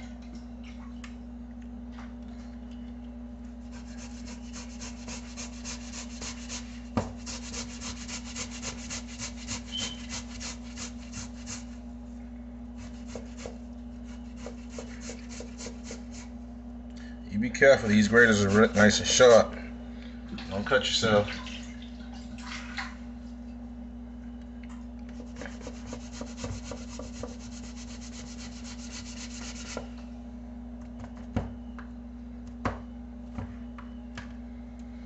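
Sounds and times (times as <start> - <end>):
steady low hum: 0.0 - 35.0
potato grated on metal grater: 3.7 - 11.8, 12.8 - 16.3, 25.2 - 29.8.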